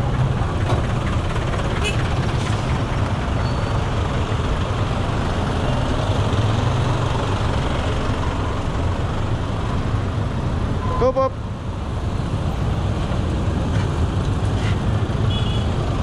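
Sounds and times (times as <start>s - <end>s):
road noise: 0.0s - 16.0s
traffic engines idling: 0.0s - 16.0s.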